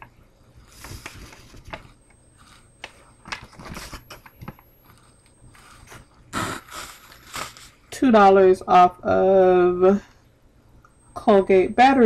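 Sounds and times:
glossy paper crinkling: 0.6s - 6.2s.

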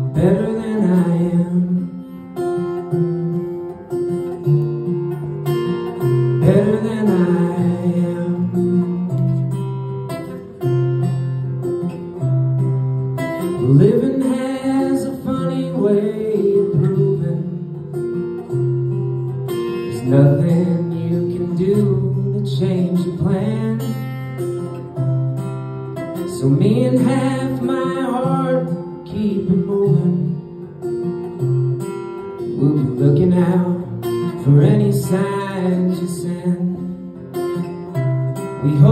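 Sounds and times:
man singing: 0.0s - 2.6s, 5.9s - 9.5s, 13.4s - 18.0s, 19.5s - 24.6s, 26.2s - 30.6s, 32.4s - 37.2s, 38.4s - 38.9s
acoustic guitar picked and strummed: 0.0s - 38.9s.

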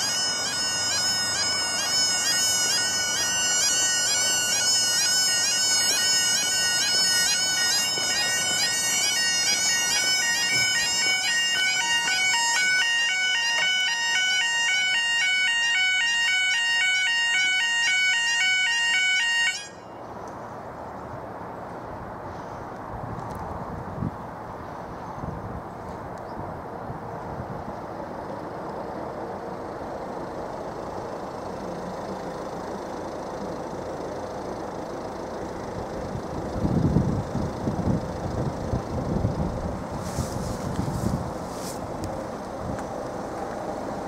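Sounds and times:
level crossing alarms warbling: 0.0s - 19.9s
faint outdoor background: 0.0s - 44.0s.

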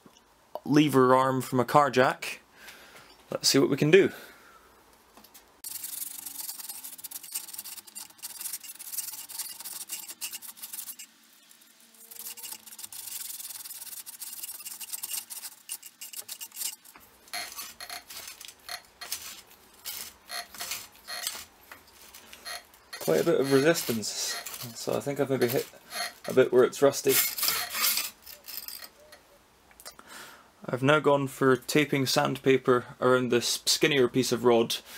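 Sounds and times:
sandpaper rasping inside metal tube: 5.6s - 28.9s.

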